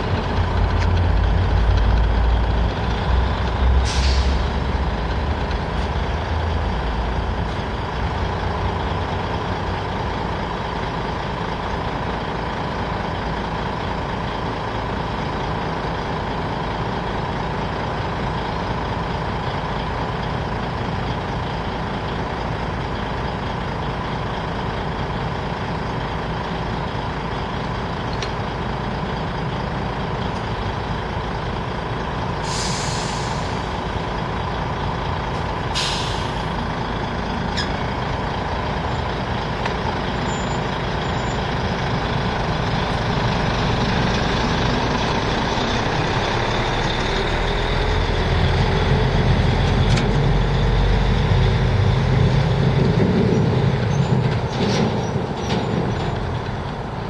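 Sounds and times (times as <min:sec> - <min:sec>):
diesel lorry engine idling: 0:00.0 - 0:57.0
air brakes hissing: 0:03.8 - 0:04.7, 0:32.4 - 0:33.9, 0:35.4 - 0:36.6.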